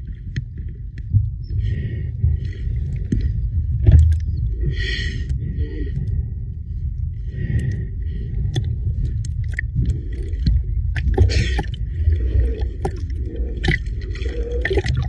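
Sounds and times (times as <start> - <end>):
steady low rumble: 0.0 - 15.0
water sloshing and gurgling: 0.0 - 15.0
water splashing: 9.0 - 15.0.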